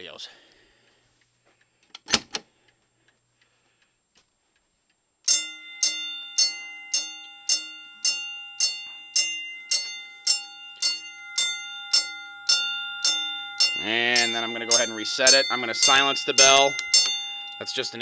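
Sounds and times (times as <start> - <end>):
fire alarm bell ringing: 5.3 - 18.0
fire alarm pull station clack: 5.3 - 18.0.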